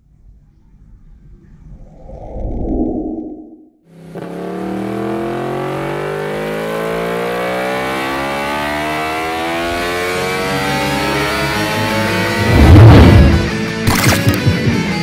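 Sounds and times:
motorcycle engine accelerating: 3.1s - 14.8s.

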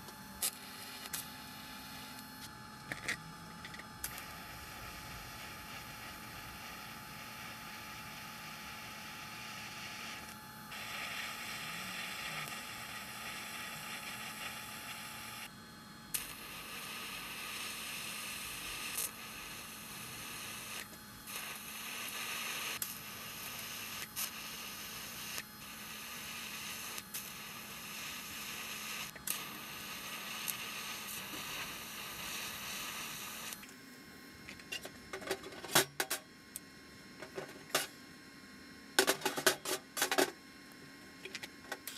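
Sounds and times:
welding arc hissing: 0.0s - 2.2s, 4.0s - 15.5s, 16.1s - 33.6s.

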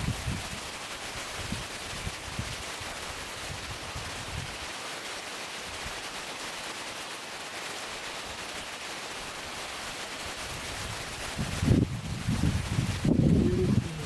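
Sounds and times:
wind puffs on microphone: 0.0s - 0.7s, 10.5s - 14.0s
wind hiss: 0.0s - 14.0s.

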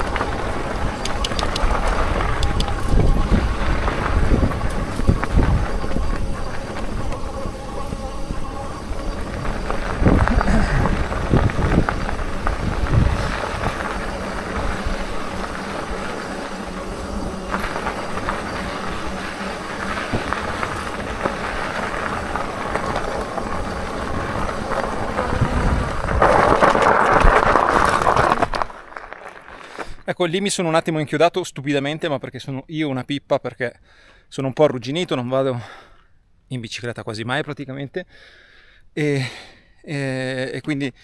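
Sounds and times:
bike knocking over stones: 0.0s - 30.0s
bike tyre rush on trail: 0.0s - 30.6s.

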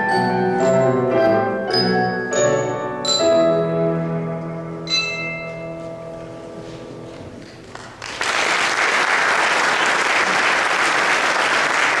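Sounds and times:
held music notes ringing: 0.0s - 7.4s
audience applause: 7.6s - 12.0s.

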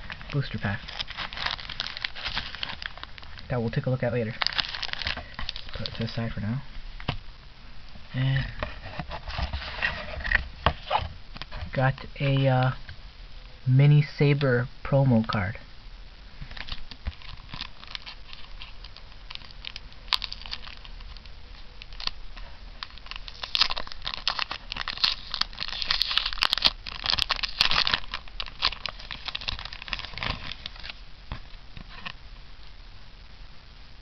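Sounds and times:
plastic wrapping crinkling: 0.0s - 7.2s, 16.4s - 32.2s.

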